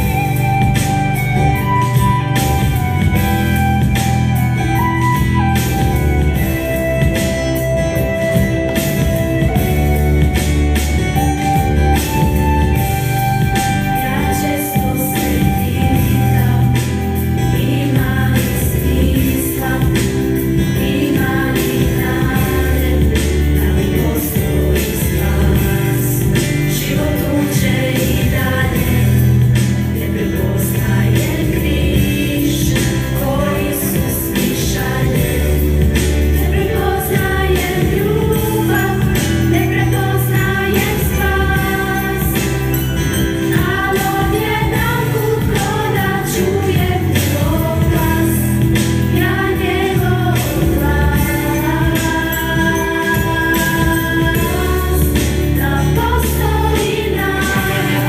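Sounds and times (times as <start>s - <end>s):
instrumental accompaniment with bass: 0.0s - 58.0s
girls singing together: 14.0s - 58.0s.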